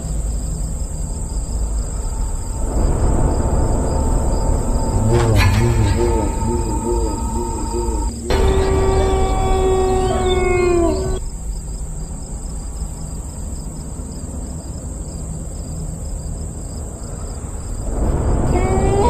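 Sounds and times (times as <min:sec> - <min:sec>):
low rumbling noise: 0:00.0 - 0:15.5, 0:16.8 - 0:19.0
eerie wavering wail: 0:01.8 - 0:11.2, 0:17.8 - 0:19.0.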